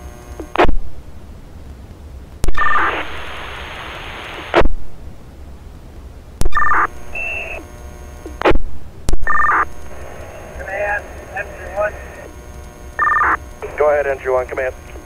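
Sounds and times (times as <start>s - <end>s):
burst of radio static: 2.4s - 4.7s, 6.4s - 15.0s
open-channel radio hiss: 2.4s - 5.8s, 6.6s - 8.5s, 9.2s - 15.0s
two-tone data beep: 6.5s - 7.6s, 9.2s - 9.7s, 13.0s - 13.4s.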